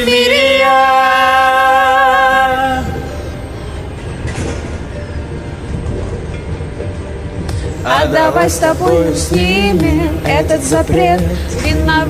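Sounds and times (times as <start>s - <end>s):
pop karaoke backing track: 0.0s - 3.4s, 7.5s - 12.0s.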